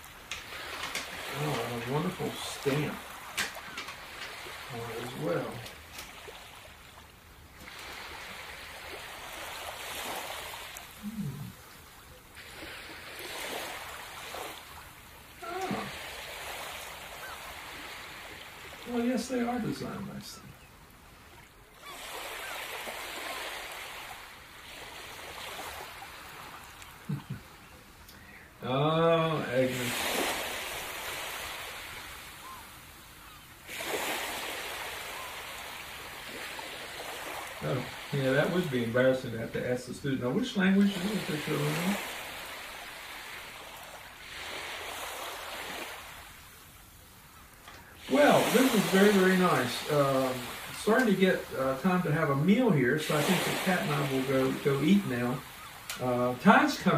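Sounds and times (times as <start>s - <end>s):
ocean surf washing: 0.0s - 56.9s
short low voice: 11.0s - 11.6s, 15.4s - 16.0s.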